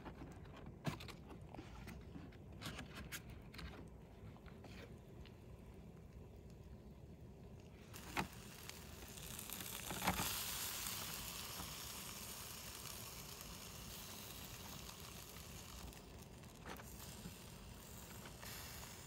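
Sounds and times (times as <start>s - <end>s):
meat sizzling on a grill: 7.8s - 19.0s.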